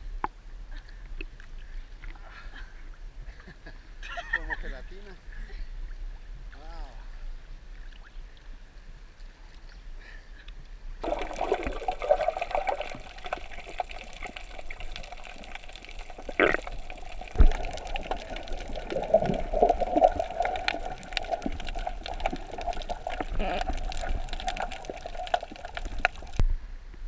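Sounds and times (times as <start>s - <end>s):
small clicks and crackles: 10.4s - 26.5s
water sloshing and bubbling: 11.0s - 26.6s.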